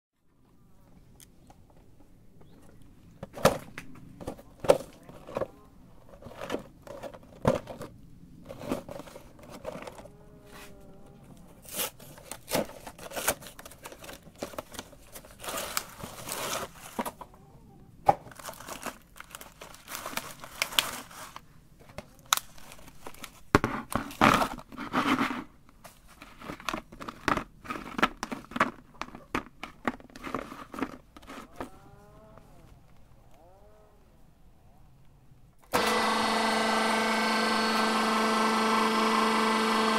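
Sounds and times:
plastic packaging crinkling: 11.6s - 17.2s, 18.3s - 21.5s, 22.1s - 24.8s.

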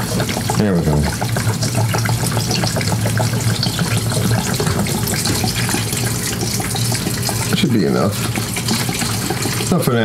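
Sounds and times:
fuel pouring into plastic tank: 0.0s - 10.0s.

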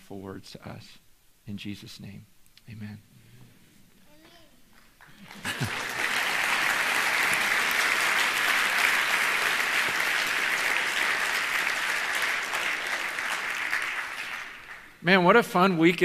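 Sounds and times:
congregation applauding: 4.8s - 16.0s.

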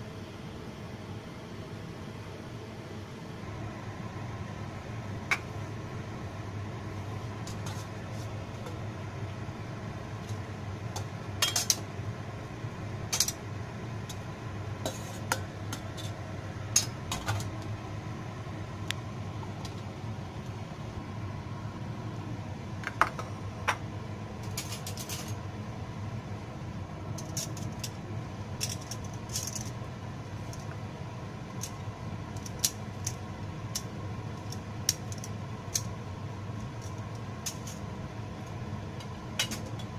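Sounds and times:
steady low hum: 0.0s - 39.9s
utensils clinking against metal pots: 11.4s - 11.8s.

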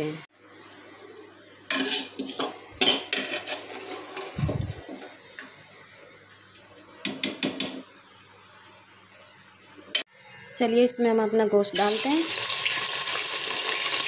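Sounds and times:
metal spoon clinking and scraping: 1.7s - 4.4s.

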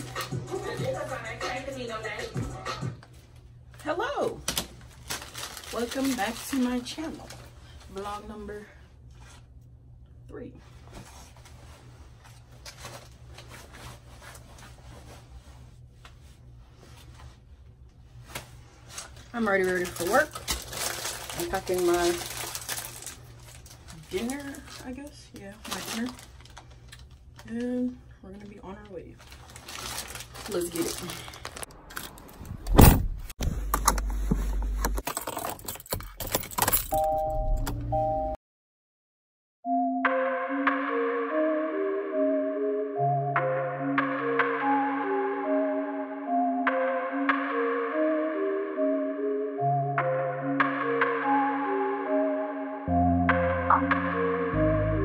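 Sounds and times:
low steady hum: 3.0s - 35.0s
clothing rustling: 10.6s - 24.7s
car door shutting: 32.7s - 34.0s
keys jangling: 35.1s - 37.1s.

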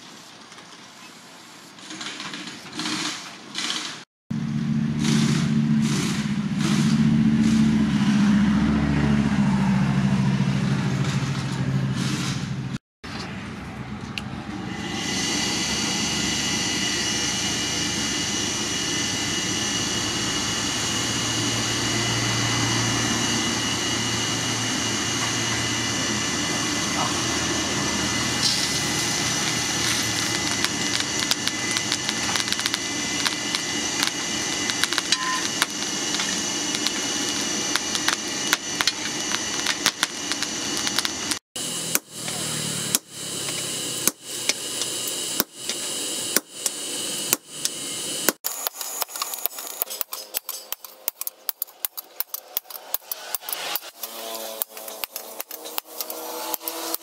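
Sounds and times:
air blower whirring hum: 3.6s - 57.0s
coals crackling: 28.2s - 57.0s.

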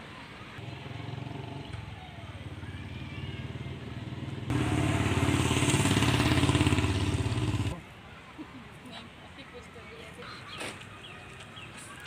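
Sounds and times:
engine running: 4.2s - 7.8s.

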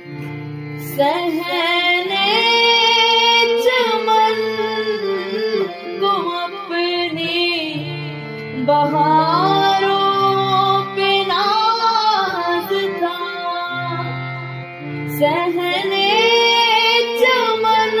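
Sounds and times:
instrumental accompaniment: 0.0s - 18.0s
person singing ornamented lines: 0.8s - 14.4s, 15.0s - 18.0s.

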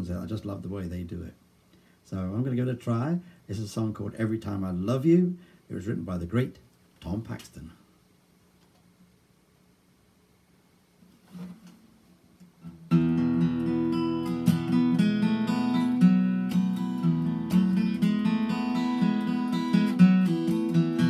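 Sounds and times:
acoustic guitar strumming: 12.6s - 21.0s.

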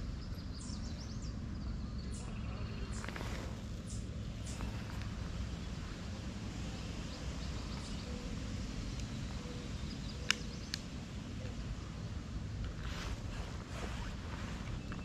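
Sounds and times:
steady low rumble: 0.0s - 15.0s
sharp clicks: 10.2s - 10.9s.

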